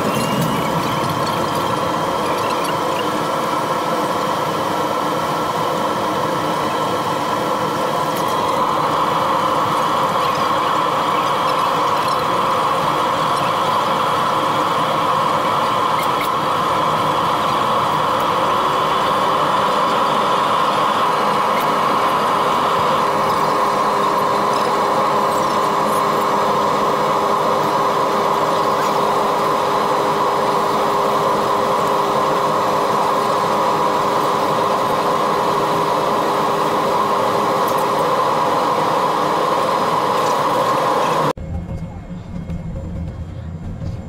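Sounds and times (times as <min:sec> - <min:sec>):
ferry engine drone: 0:00.0 - 0:44.0.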